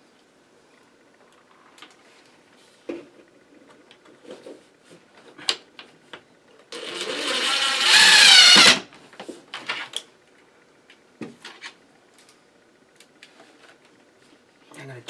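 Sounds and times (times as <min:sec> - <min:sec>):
cordless drill motor running: 0:06.7 - 0:08.8.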